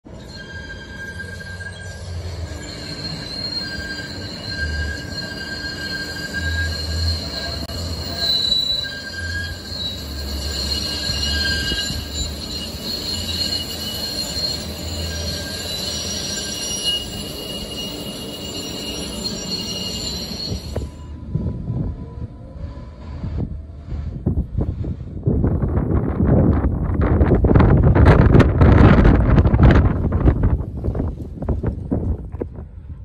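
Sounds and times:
low rumble of moving train: 0.0 - 33.0
train wheels squealing on rails: 0.1 - 25.1.

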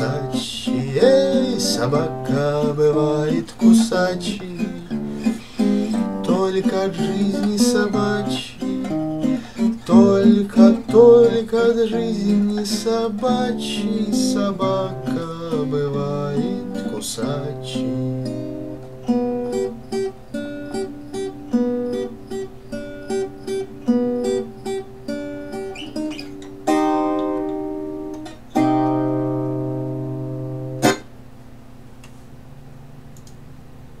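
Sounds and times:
acoustic guitar fingerpicking and strumming: 0.0 - 31.2
slap on guitar strings: 30.8 - 31.1.

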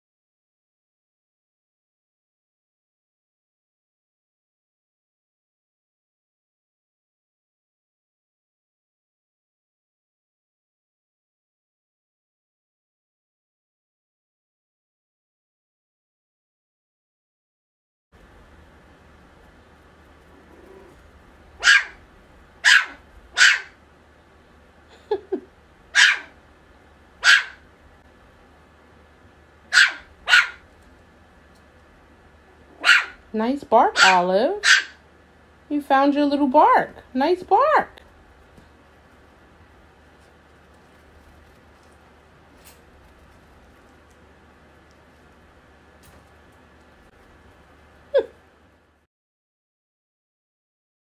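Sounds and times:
steady low hum: 18.2 - 49.1
puppy barking: 21.6 - 23.8, 25.9 - 26.4, 27.2 - 27.6, 29.7 - 30.7, 32.7 - 33.2, 33.9 - 35.0.

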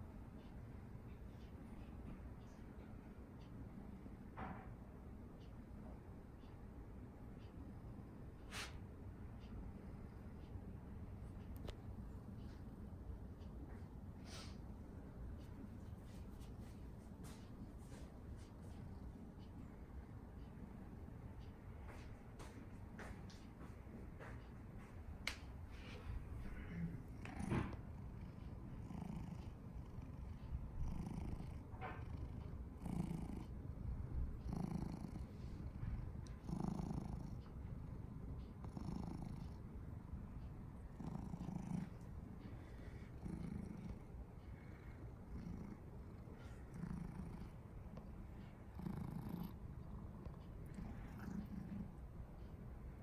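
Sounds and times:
cat purring: 25.9 - 52.5.

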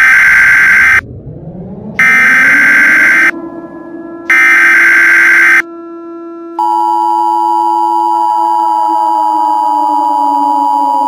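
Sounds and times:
harsh digital data screech: 0.0 - 1.0
low falling drone: 0.0 - 6.6
two-tone attention signal: 4.3 - 5.6.

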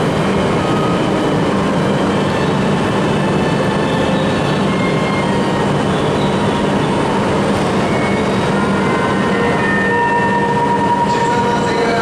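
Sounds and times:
train rushing and humming: 0.0 - 12.0.

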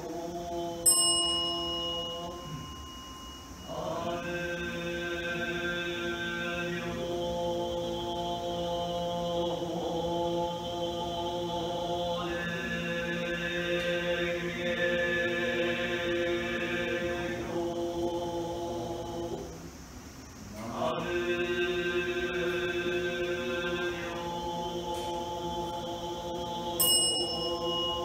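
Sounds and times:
ceremonial drone music: 20.6 - 28.0.

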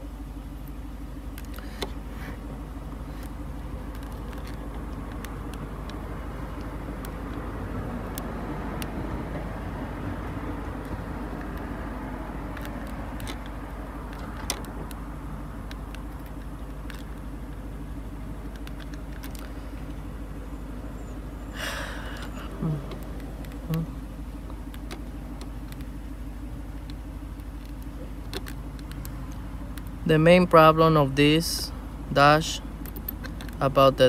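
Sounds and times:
low buzzing hum: 0.0 - 34.0
faint clicks: 21.7 - 26.0.

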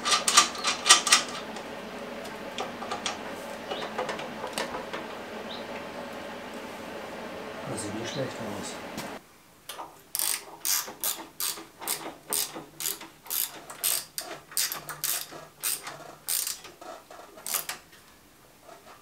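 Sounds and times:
ratchet wrench clicking: 10.1 - 16.7, 17.4 - 17.8.

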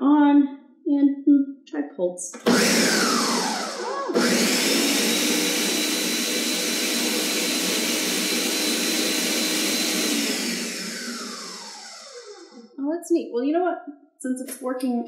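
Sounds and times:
blender motor running: 2.4 - 12.7.

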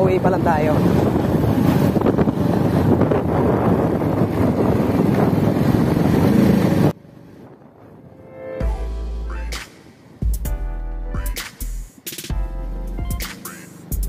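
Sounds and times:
motorcycle engine running: 0.0 - 6.9
wind buffeting microphone: 0.0 - 8.3
road noise: 0.0 - 14.0.

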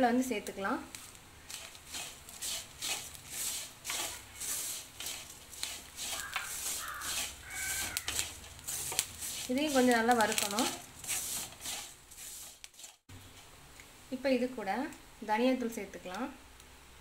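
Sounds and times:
food frying: 0.4 - 13.5
wooden spatula scraping a pan: 0.9 - 13.5
short high calls: 6.1 - 8.2.

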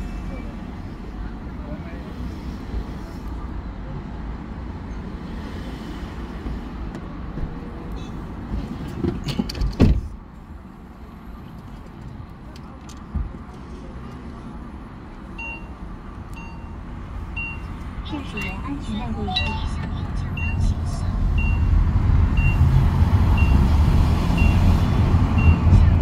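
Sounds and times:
car road rumble: 0.0 - 26.0
short electronic beep: 19.3 - 20.6.

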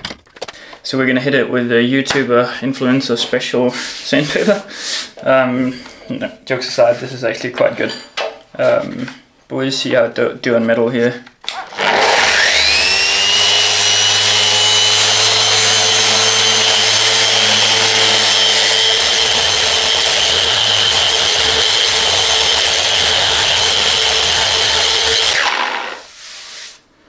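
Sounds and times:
power sander on metal table: 11.5 - 26.1.

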